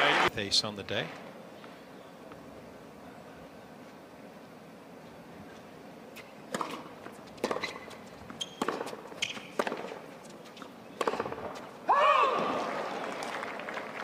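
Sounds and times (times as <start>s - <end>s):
racket striking tennis ball: 6.2s - 10.1s, 11.0s - 11.7s
tennis ball bouncing: 6.2s - 11.7s.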